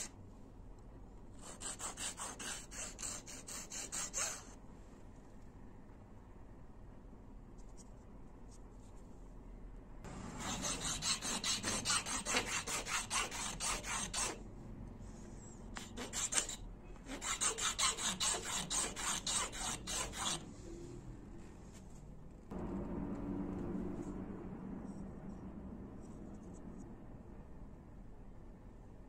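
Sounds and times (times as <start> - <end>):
hand file rasping on horn: 10.4 - 14.4, 15.8 - 20.4.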